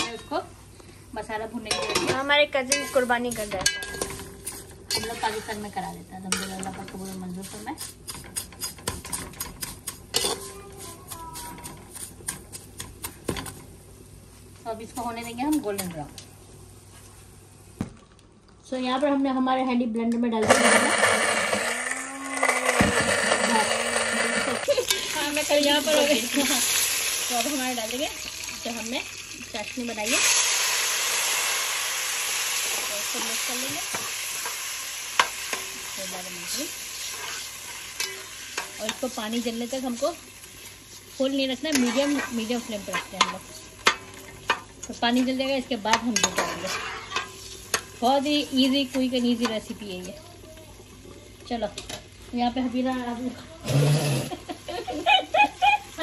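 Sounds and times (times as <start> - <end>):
metal spoon clinking against pot: 1.7 - 5.1
spatula scraping metal pot: 2.6 - 12.9, 20.4 - 26.3, 35.2 - 39.4, 41.6 - 44.6, 45.2 - 48.0
syrup sizzling in hot pot: 20.5 - 53.1.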